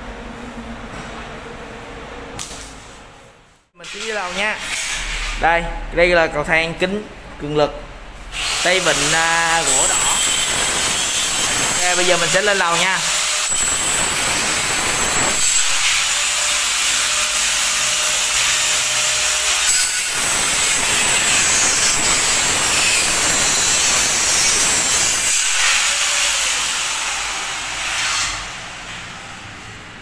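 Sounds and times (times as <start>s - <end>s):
power tool harsh hiss: 8.3s - 29.2s.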